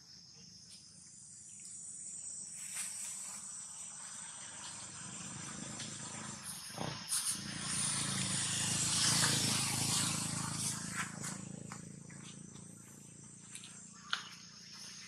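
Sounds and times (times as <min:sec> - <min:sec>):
motorbike passing: 0:04.1 - 0:15.0.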